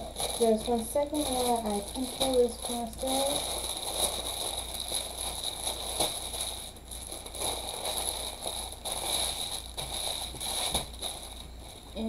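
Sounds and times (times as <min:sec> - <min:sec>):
plastic wrapping crinkling: 0:00.0 - 0:12.0.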